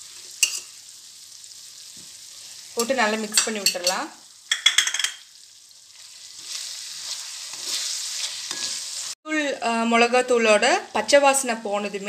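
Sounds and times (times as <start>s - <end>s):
oil frying sizzle: 0.0s - 12.0s
spatula scraping metal pan: 6.1s - 9.0s.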